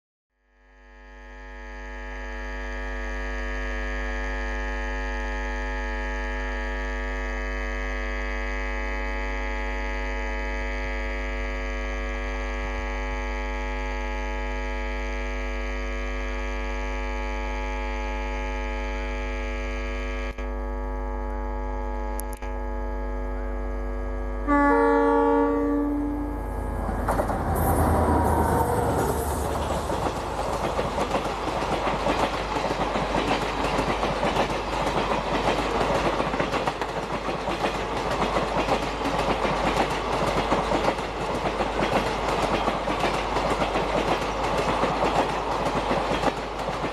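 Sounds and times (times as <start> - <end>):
diesel locomotive engine drone: 0.7 - 46.9
locomotive horn blast: 1.2 - 20.4, 24.4 - 31.8.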